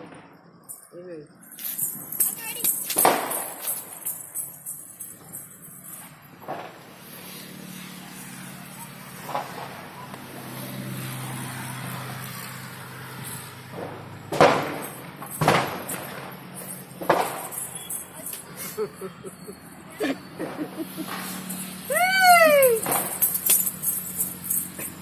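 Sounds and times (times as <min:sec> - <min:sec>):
vehicle engine hum: 0:03.7 - 0:25.0
loud sudden bangs: 0:13.7 - 0:17.8.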